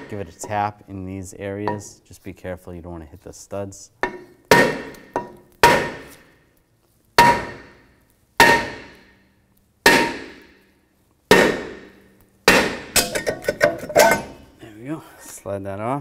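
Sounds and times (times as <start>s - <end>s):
hammer striking brake rotor: 4.0s - 6.3s, 7.2s - 7.8s, 8.4s - 9.2s, 9.9s - 10.6s, 11.3s - 14.4s.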